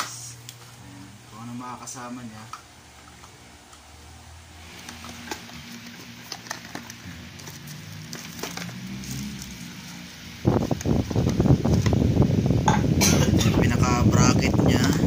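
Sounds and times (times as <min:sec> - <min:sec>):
plastic packaging crinkling: 0:04.6 - 0:11.8.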